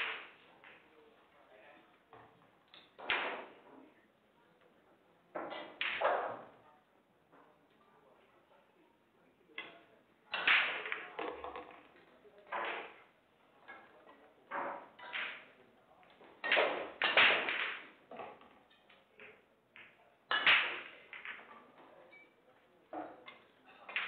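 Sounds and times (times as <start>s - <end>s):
pool balls clicking: 0.0s - 0.9s, 5.3s - 6.6s, 9.6s - 22.0s, 22.9s - 24.0s.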